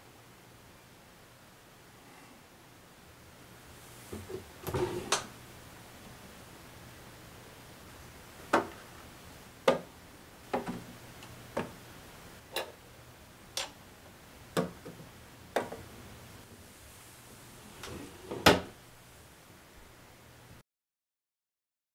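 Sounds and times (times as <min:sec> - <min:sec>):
cabinet door swinging shut: 0:04.2 - 0:05.3, 0:17.8 - 0:18.7.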